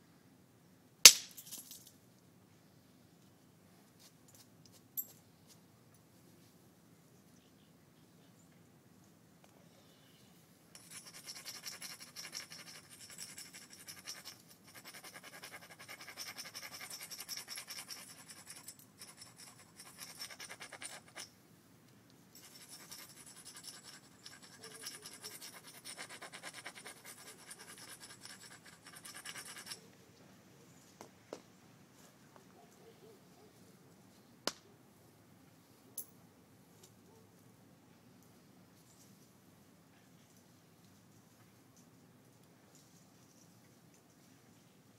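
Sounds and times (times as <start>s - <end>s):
tool scratching stone edge: 10.8s - 21.3s, 22.4s - 29.9s.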